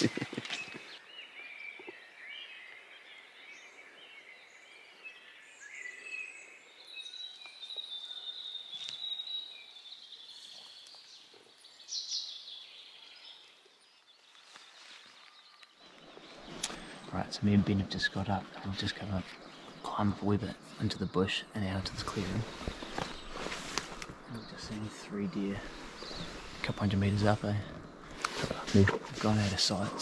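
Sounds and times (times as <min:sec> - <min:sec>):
faint outdoor hiss: 0:00.0 - 0:30.0
wild birds chirping and whistling: 0:00.0 - 0:30.0.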